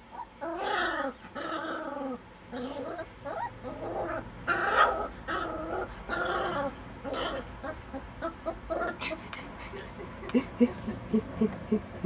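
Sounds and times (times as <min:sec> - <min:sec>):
puppies yipping and barking: 0:00.0 - 0:09.0.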